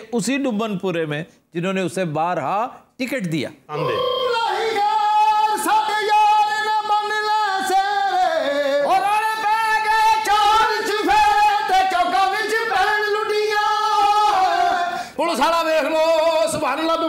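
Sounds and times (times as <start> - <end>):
person singing with vibrato: 3.7 - 17.0.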